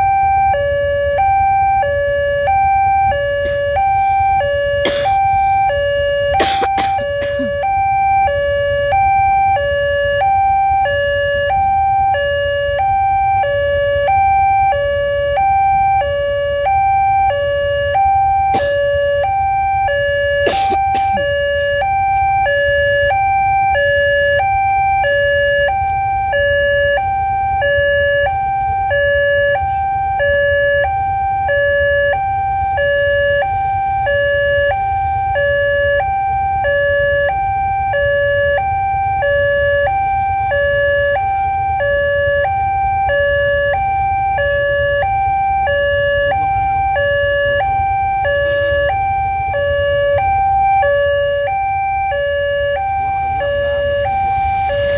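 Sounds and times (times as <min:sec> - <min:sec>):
level crossing two-tone alarm: 0:00.0 - 0:54.9.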